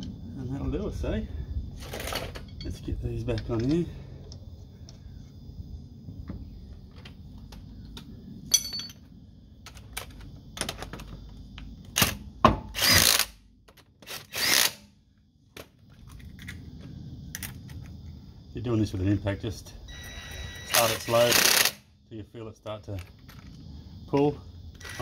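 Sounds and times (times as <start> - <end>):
ringing metallic clink: 8.5 - 9.0
lug nuts and tools clinking: 8.5 - 9.1
impact wrench bursts: 20.6 - 21.8.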